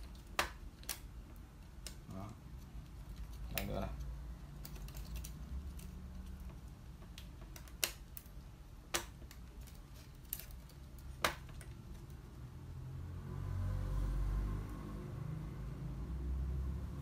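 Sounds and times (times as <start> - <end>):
sharp plastic clicks: 4.5 - 12.2.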